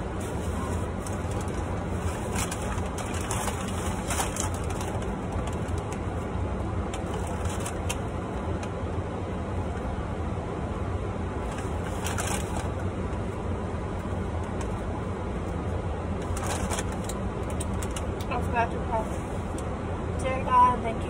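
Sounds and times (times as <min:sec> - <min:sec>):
steady low hum in car: 0:00.0 - 0:21.0
paper crinkling and rustling: 0:00.1 - 0:06.2, 0:07.0 - 0:08.1, 0:11.4 - 0:12.8, 0:16.2 - 0:18.1.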